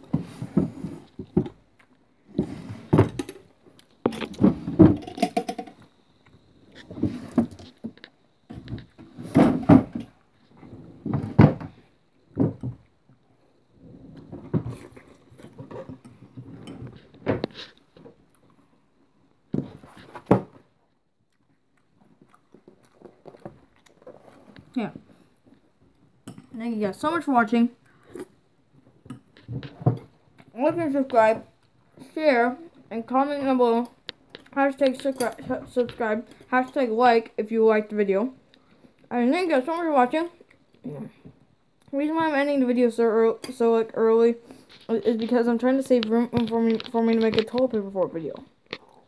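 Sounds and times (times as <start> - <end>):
objects knocking and rattling: 2.4 - 5.9, 6.8 - 12.9, 29.0 - 31.4.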